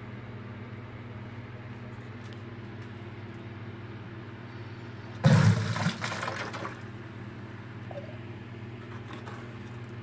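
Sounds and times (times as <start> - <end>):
water rushing into plastic bucket: 5.2 - 6.8.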